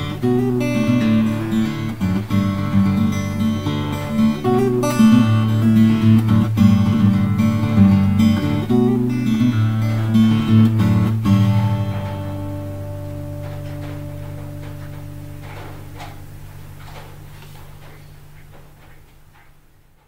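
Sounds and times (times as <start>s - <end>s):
acoustic guitar music: 0.0s - 20.0s.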